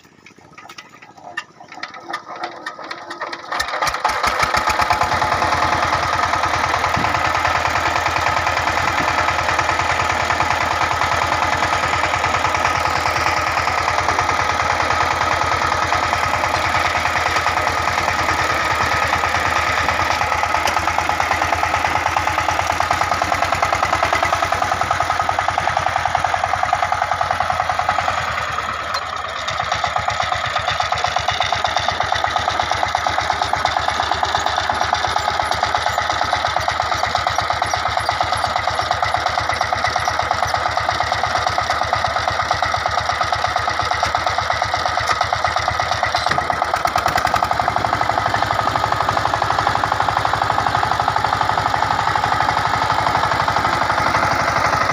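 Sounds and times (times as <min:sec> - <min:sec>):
diesel engine chugging: 0:00.0 - 0:54.9.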